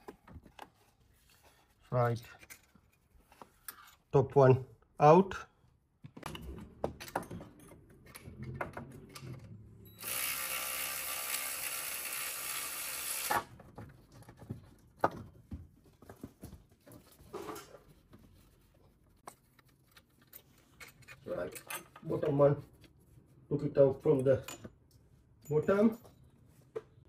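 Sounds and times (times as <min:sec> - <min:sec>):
power ratchet running: 0:10.0 - 0:13.5
metal tools clinking: 0:20.2 - 0:22.2, 0:24.1 - 0:24.7, 0:25.4 - 0:26.4.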